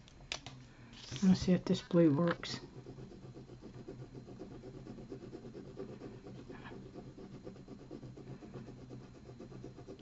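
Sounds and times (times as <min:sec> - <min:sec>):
pen scratching on paper: 0:01.2 - 0:10.0.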